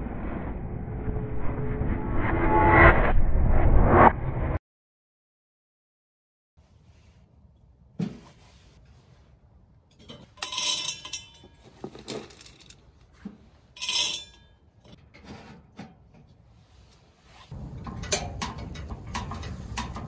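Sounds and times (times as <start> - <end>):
metal fittings clinking: 9.9 - 12.9, 13.7 - 15.0
metallic knocks: 17.6 - 20.0.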